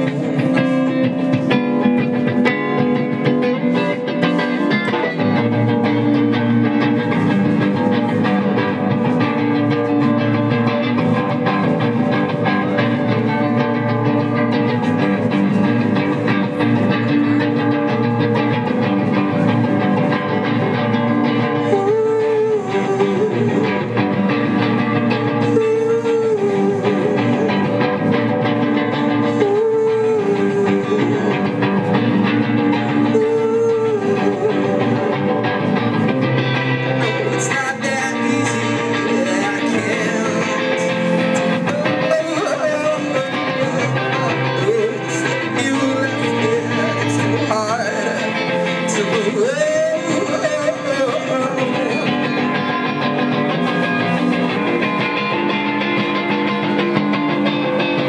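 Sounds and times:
electric guitar through amplifier: 0:00.0 - 0:58.0.

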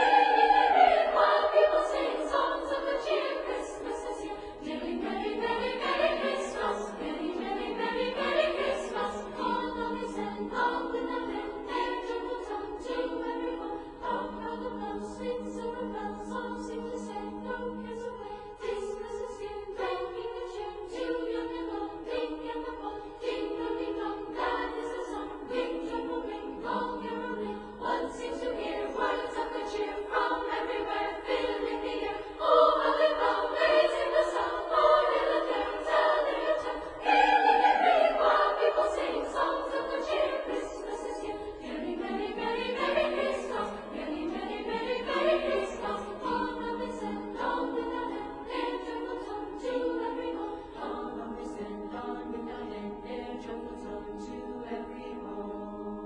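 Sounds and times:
choir singing long notes: 0:00.0 - 0:56.0.

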